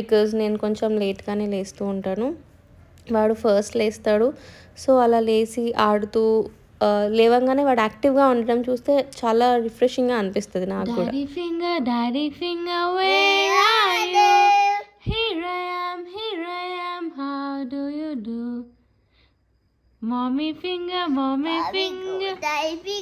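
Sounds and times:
toddler singing: 0:13.0 - 0:15.0, 0:21.4 - 0:23.0.

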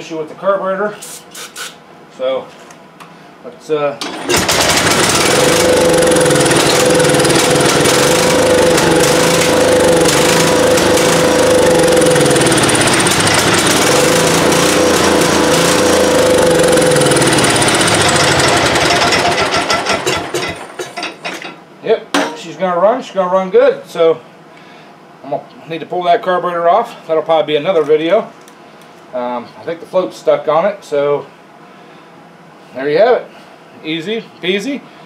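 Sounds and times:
mower engine running: 0:04.0 - 0:20.9.

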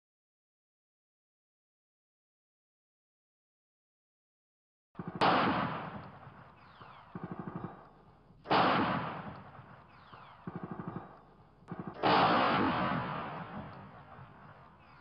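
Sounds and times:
faint automatic gunfire bursts: 0:05.0 - 0:15.0
loud gunshots echoing: 0:05.0 - 0:15.0.

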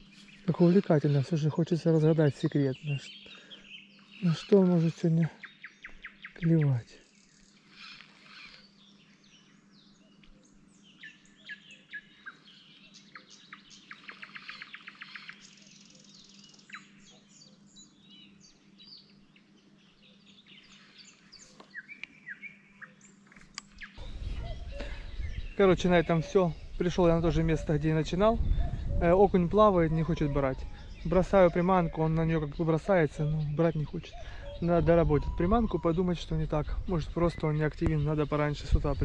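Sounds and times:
bird trill: 0:00.0 - 0:39.0
small birds chirping: 0:00.0 - 0:39.0
low rumbling noise: 0:24.0 - 0:31.6.

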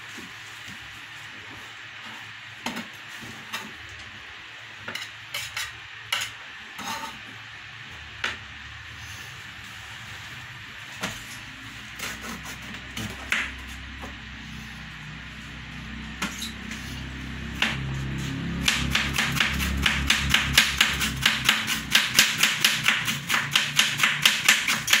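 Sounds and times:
knife chopping cabbage on plastic board: 0:18.5 - 0:25.0.

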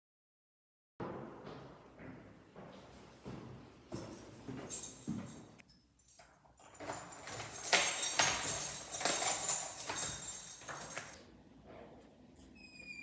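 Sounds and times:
keys jingling: 0:03.9 - 0:11.2.

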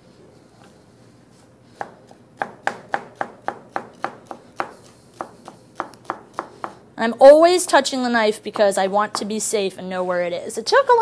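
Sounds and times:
knife chopping on cutting board: 0:01.7 - 0:06.8.

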